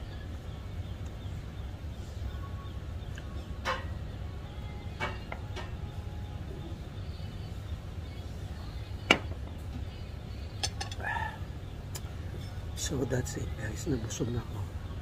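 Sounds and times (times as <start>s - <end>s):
tableware clicks: 10.6s - 11.0s.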